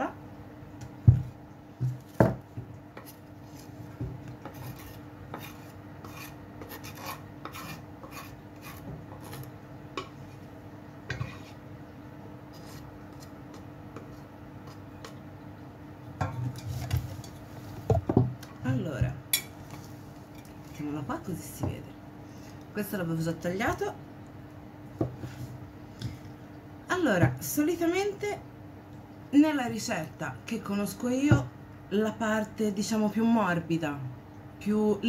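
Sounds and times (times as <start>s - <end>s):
knife scraping cutting board: 4.3s - 10.5s, 11.1s - 11.6s, 12.5s - 14.8s.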